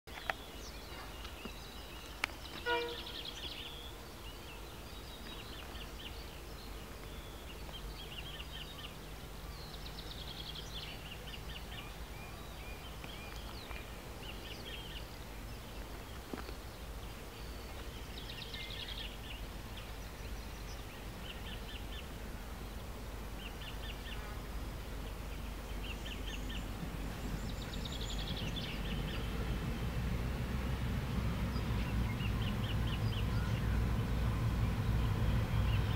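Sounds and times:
birds chirping: 0.1s - 35.9s
low outdoor rumble: 0.2s - 35.9s
distant freight train: 2.3s - 3.9s, 23.8s - 35.9s.

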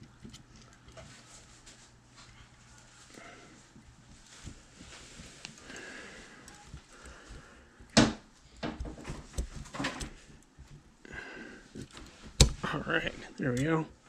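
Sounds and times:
knocks and clicks of parts: 11.8s - 12.7s.

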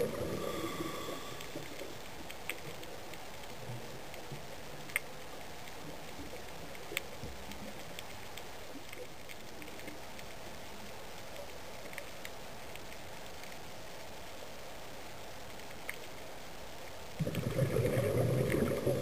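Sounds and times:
underwater hiss: 0.0s - 2.0s, 17.2s - 19.0s
sharp clicks and crackles: 0.0s - 16.4s, 17.0s - 19.0s.

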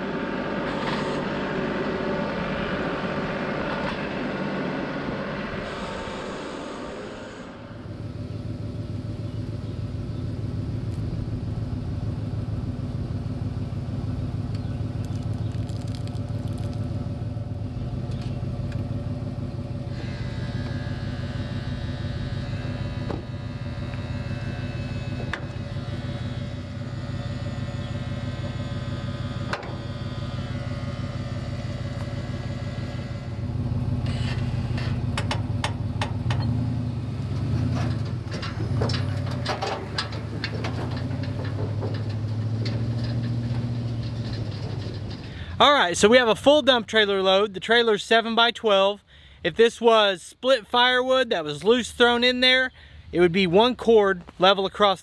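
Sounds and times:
truck engine running: 0.0s - 49.4s
sharp clicks: 14.5s - 16.9s.

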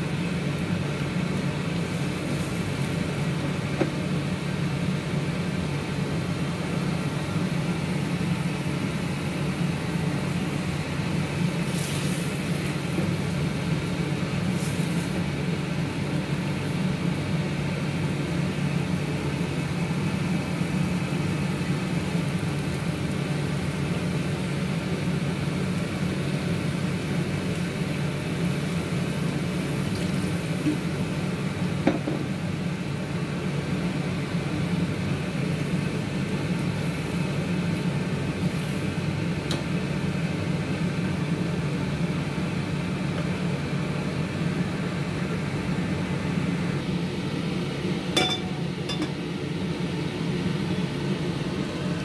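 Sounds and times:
low machine hum: 0.0s - 38.2s, 41.2s - 52.0s
wok and lid clinking: 48.2s - 49.2s.

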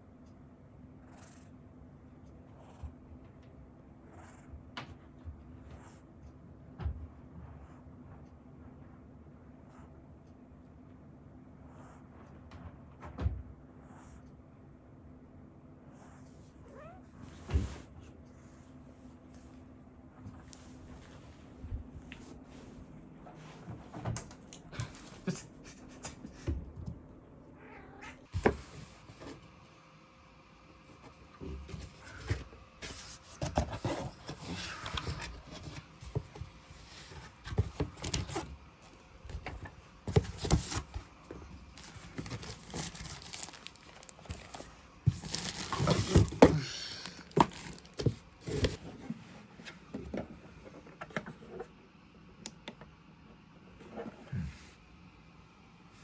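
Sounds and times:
cat meowing: 16.6s - 17.1s, 27.6s - 28.3s
cardboard and plastic rustling: 31.3s - 51.6s.

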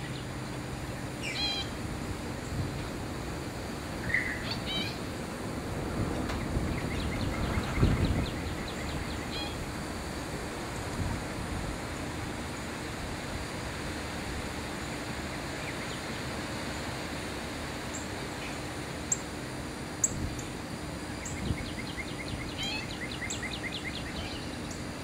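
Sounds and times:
outdoor background hiss: 0.0s - 25.0s
birds chirping: 1.0s - 1.8s, 4.0s - 5.1s, 6.3s - 9.7s, 21.2s - 24.9s.

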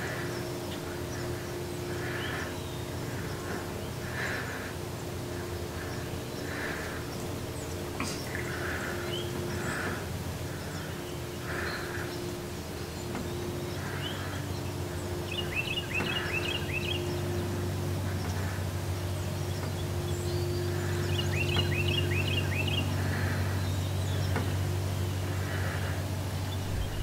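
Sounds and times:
songbird chirping: 0.0s - 27.0s
low rumble: 26.3s - 27.0s.

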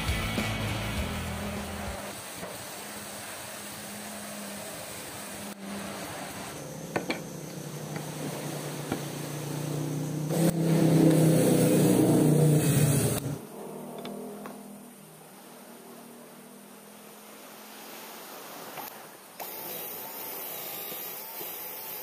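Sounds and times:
cordless drill whining: 19.4s - 22.0s.

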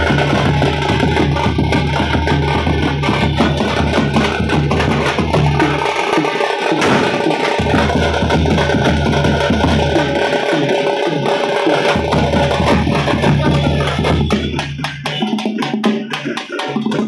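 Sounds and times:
frame drums beaten with sticks: 0.0s - 17.0s
bass drum booming: 6.8s - 9.9s.

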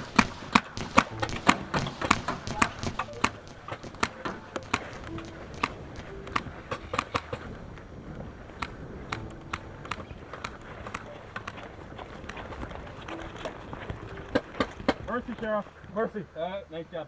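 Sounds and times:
paintball markers firing: 0.0s - 7.6s, 8.5s - 12.4s.

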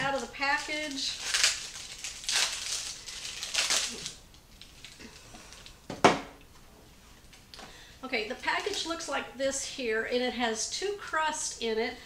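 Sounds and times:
plastic wrapper crinkling: 0.0s - 5.8s, 8.3s - 9.0s.

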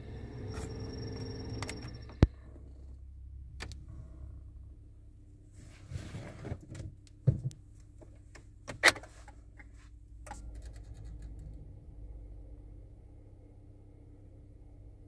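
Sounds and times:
diesel engine turning over: 0.0s - 4.5s
clicks and knocks inside car: 6.4s - 11.2s.

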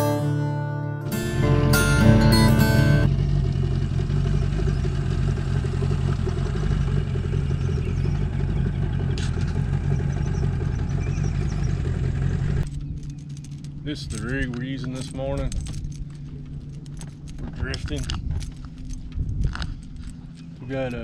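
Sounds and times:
guitar music: 0.0s - 3.1s
outboard motor running: 1.5s - 14.2s.

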